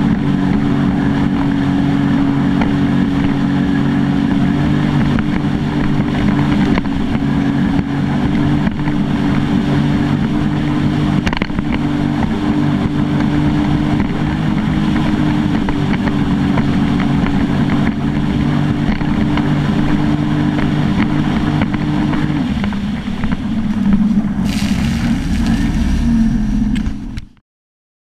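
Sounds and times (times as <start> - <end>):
water and wind noise: 0.0 - 27.4
watercraft engine running: 0.0 - 27.4
hiss: 24.4 - 26.8.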